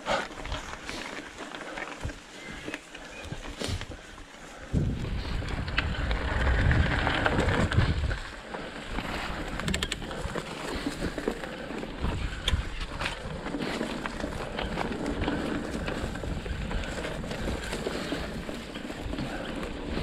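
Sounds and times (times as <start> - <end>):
bike rattling: 0.0 - 20.0
bike tyres on dirt: 0.0 - 20.0
wind buffeting microphone: 2.0 - 20.0
sharp clicks and knocks: 9.6 - 10.1.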